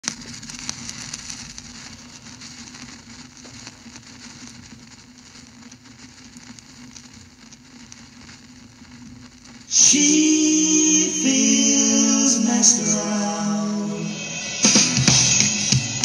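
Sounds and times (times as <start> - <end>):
crackling hissy noise: 0.0 - 16.0.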